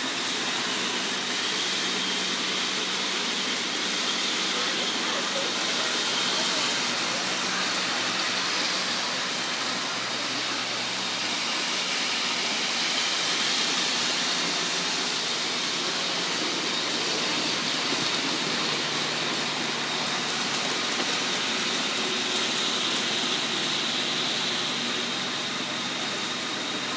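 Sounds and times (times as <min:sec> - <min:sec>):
model trains rumbling on track: 0:00.0 - 0:26.9.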